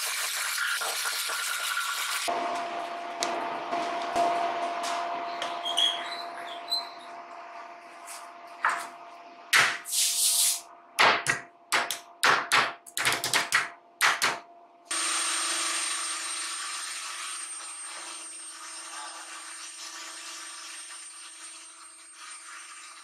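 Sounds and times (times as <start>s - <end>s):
shop machine running with whine: 14.9s - 22.2s.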